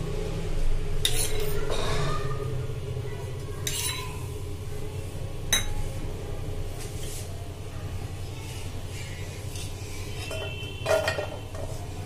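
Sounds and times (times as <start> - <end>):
metal spoon scraping a pan: 1.0 - 2.2, 3.6 - 4.3, 8.9 - 11.9.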